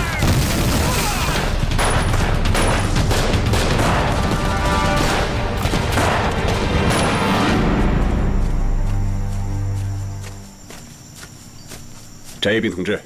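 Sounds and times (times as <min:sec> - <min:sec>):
rifle and machine-gun fire: 0:00.0 - 0:07.2
explosions: 0:00.0 - 0:07.4
dramatic background music: 0:00.1 - 0:11.0.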